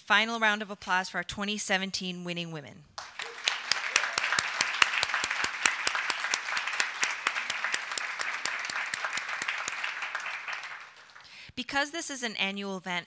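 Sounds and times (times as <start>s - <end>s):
audience applauding: 3.0s - 11.4s.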